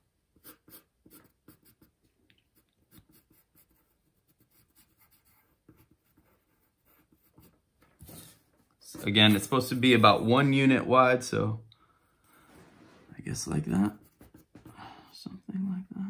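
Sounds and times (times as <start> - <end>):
pencil scratching on paper: 0.3 - 10.5, 13.6 - 14.8.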